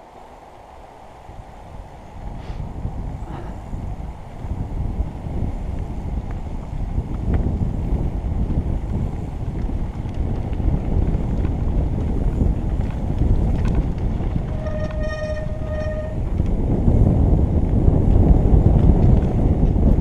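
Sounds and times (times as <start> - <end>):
wind buffeting microphone: 0.0 - 20.0
bike tyres rattling on rough track: 1.2 - 20.0
short steady squeal: 14.5 - 16.2.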